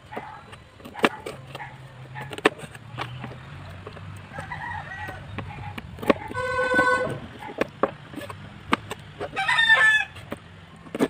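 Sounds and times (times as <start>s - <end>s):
chickens calling: 0.1s - 10.4s
rooster crowing: 4.3s - 5.3s, 6.3s - 7.2s, 9.3s - 10.2s.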